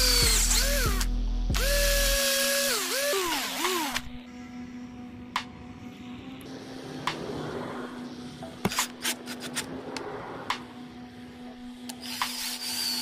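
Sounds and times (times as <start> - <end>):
cordless drill whining: 0.0 - 4.2, 11.9 - 13.0.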